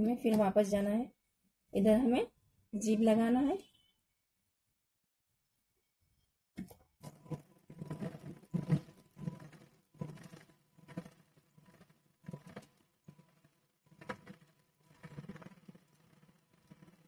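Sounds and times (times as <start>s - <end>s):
sewing machine stitching: 7.0s - 17.0s.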